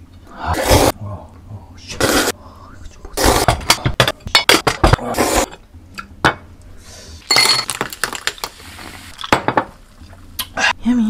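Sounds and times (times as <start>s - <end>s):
ice cubes clinking in glass: 7.3s - 8.5s.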